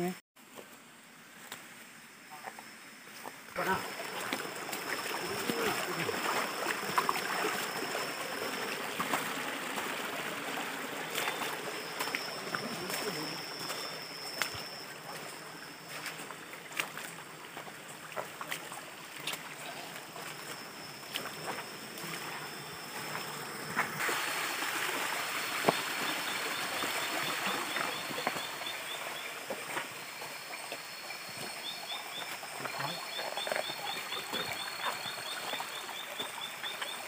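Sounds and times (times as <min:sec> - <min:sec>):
stream rushing over rocks: 0:03.4 - 0:37.0
thin steady high tone: 0:03.6 - 0:16.7, 0:19.2 - 0:24.0.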